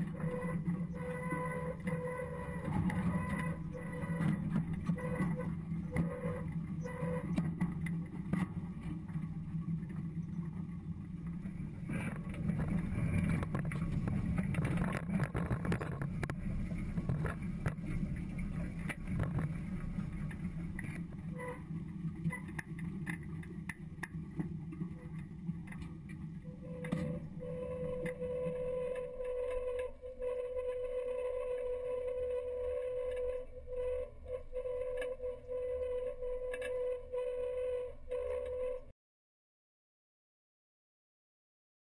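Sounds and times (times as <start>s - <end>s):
shanks rattling and scraping in soil: 11.4s - 21.3s
air drill low drone: 26.4s - 38.9s.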